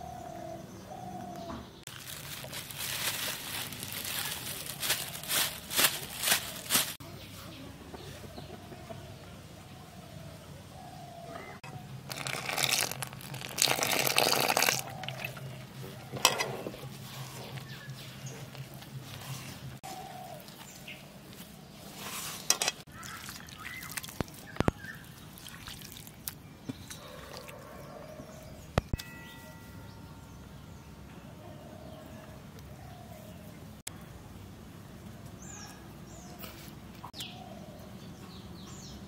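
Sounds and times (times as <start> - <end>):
water splashing into bowl: 12.1 - 15.4, 22.9 - 26.4.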